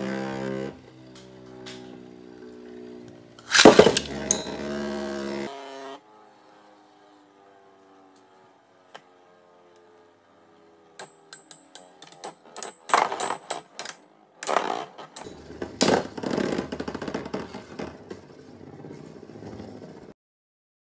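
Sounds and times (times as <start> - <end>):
spinning tops clashing: 3.4 - 4.6
spinning top rattling scrape: 3.4 - 4.8, 11.8 - 13.8.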